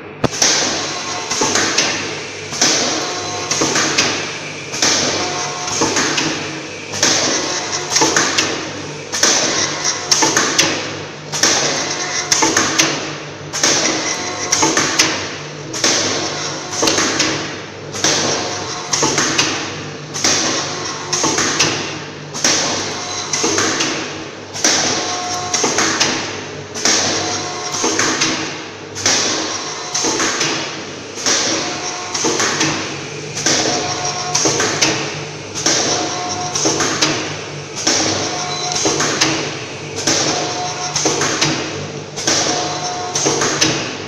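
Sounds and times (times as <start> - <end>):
steady machine hum: 0.0 - 44.0
packing machine clacking: 29.0 - 44.0.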